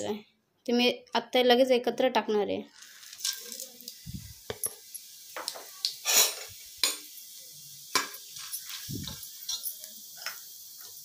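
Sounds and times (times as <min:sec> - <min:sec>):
oil sizzling: 0:02.7 - 0:11.0.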